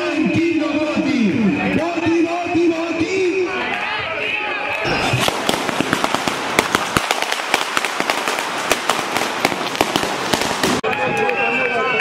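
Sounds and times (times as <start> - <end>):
firecrackers exploding: 4.9 - 11.0.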